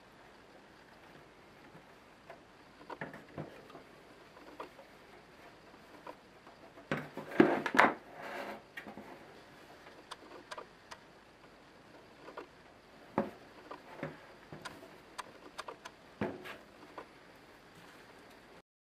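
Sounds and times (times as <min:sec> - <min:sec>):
scraping on a table: 0:07.1 - 0:09.3.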